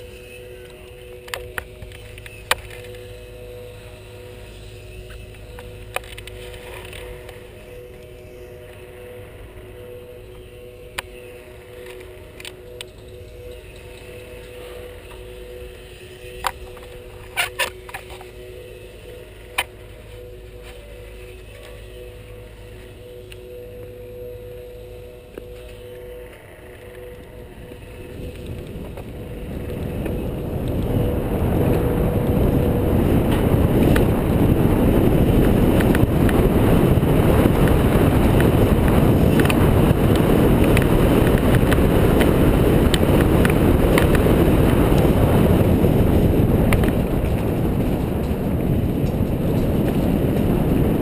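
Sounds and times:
bike tyre rumble and rattling: 0:00.0 - 0:51.0
wind rushing over microphone: 0:01.1 - 0:51.0.

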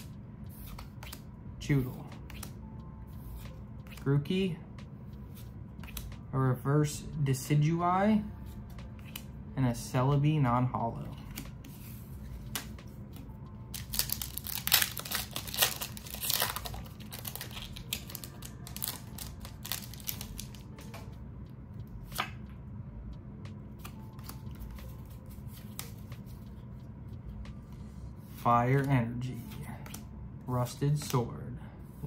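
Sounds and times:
foil wrapper tearing and crinkling: 0:13.8 - 0:20.6.

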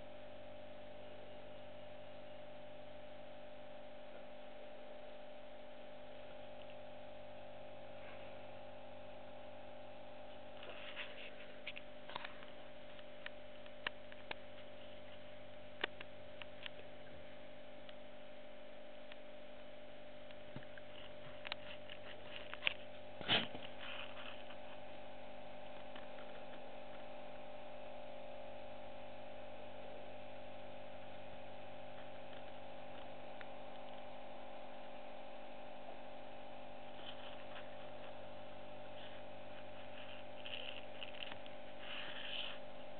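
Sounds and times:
electrical hum: 0:00.0 - 0:42.9
small clicks and ticks: 0:10.6 - 0:16.9, 0:20.3 - 0:22.8, 0:32.0 - 0:34.1, 0:39.8 - 0:42.7.

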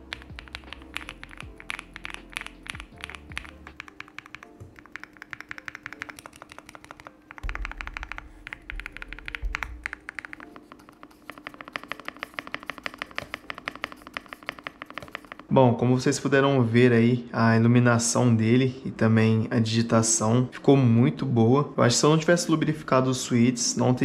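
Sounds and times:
mechanical keyboard typing: 0:00.0 - 0:15.5
background music: 0:00.0 - 0:24.0.

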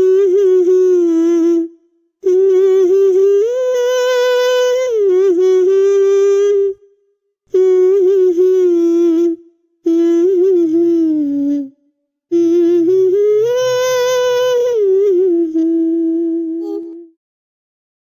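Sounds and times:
high voice humming a melody: 0:00.0 - 0:06.8, 0:07.5 - 0:17.2.

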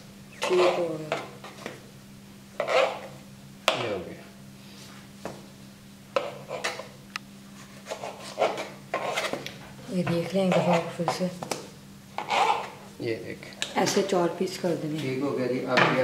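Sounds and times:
steady low hum: 0:00.0 - 0:16.0
knife cutting on board: 0:07.8 - 0:09.4.

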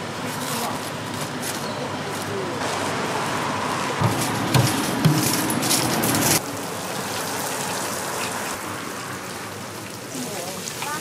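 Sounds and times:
knocks and clatters of handling: 0:04.0 - 0:06.4
dough deep-frying in oil: 0:06.4 - 0:11.0.

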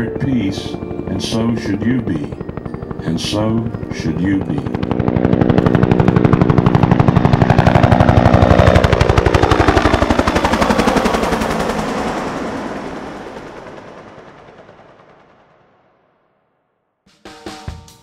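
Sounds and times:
helicopter rotor blade slap: 0:00.7 - 0:12.1.

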